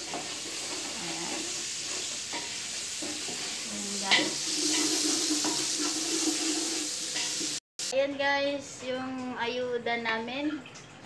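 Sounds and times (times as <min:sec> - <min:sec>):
vegetables sizzling in hot oil: 0:00.0 - 0:09.0.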